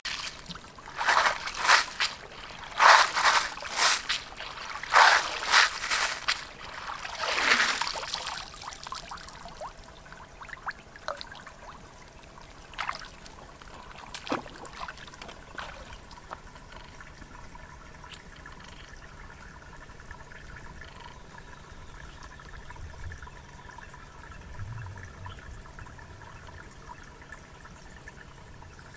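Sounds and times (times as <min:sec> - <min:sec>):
wading steps splashing: 0:00.0 - 0:09.4, 0:12.7 - 0:16.5
water pouring and splashing: 0:00.0 - 0:19.9
stream trickling: 0:00.0 - 0:28.9.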